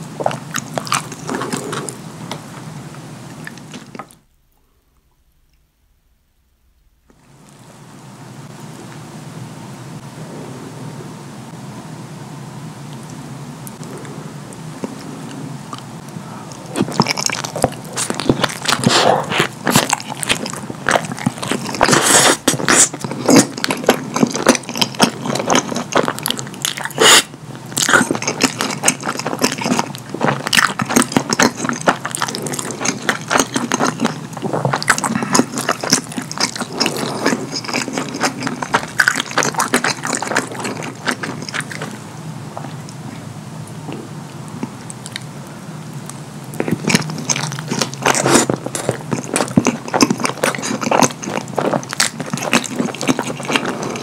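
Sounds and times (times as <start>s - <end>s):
wet chewing and lip-smacking: 14.8s - 42.0s, 43.9s - 45.3s, 46.0s - 54.0s.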